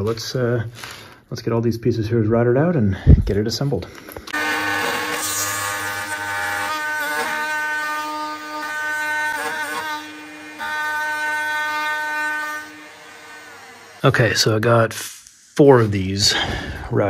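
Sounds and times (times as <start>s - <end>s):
router cutting wood: 4.3s - 14.2s.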